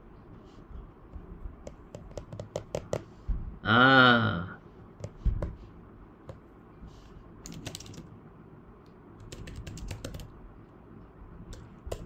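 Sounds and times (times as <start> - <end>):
keyboard typing clicks: 1.6 - 3.0, 7.4 - 8.1, 9.2 - 10.3, 11.5 - 12.0.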